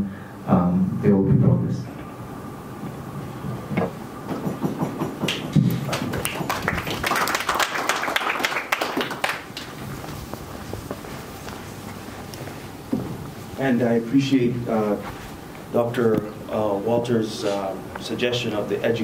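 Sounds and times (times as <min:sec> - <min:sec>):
audience applauding: 0:04.4 - 0:10.2.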